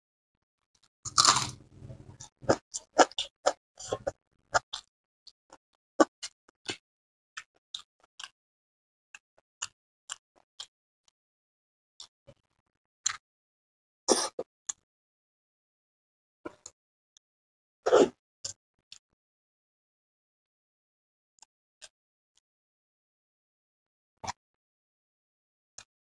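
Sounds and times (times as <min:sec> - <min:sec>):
crunching: 0:01.1 - 0:02.6.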